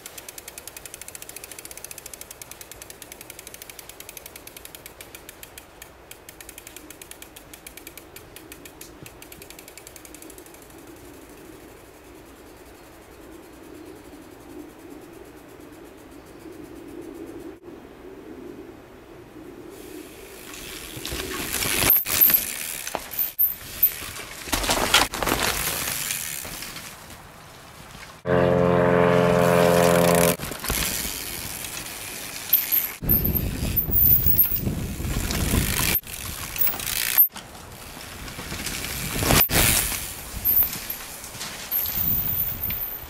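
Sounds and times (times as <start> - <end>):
bike tyres on dirt trail: 0.0 - 14.4, 19.8 - 43.0
loud steady buzz from bike: 28.2 - 42.9.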